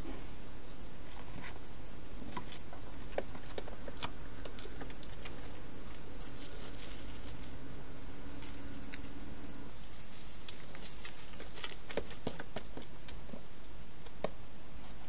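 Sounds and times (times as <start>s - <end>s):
steady hiss: 5.8s - 12.3s
hedgehog clicks and rustles: 9.8s - 12.9s.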